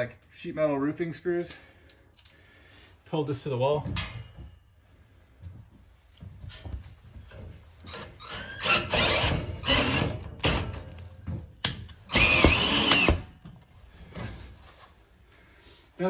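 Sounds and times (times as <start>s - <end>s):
cordless drill driving screws into metal: 7.9s - 10.8s, 11.8s - 13.4s.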